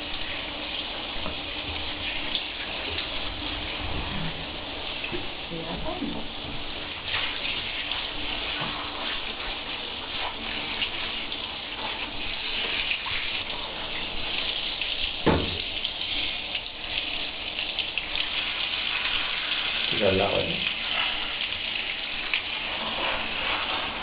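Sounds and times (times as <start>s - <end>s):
water spraying from shower head: 0.0s - 24.0s
sharp knock: 15.2s - 15.6s.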